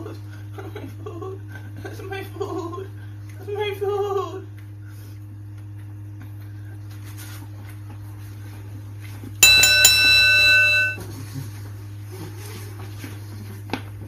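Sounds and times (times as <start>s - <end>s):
electronic chime: 9.4s - 11.0s.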